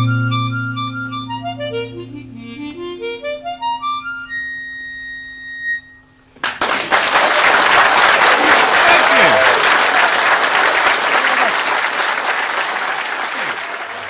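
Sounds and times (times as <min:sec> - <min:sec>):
harmonica: 0:00.0 - 0:06.2
audience applause: 0:06.4 - 0:14.0.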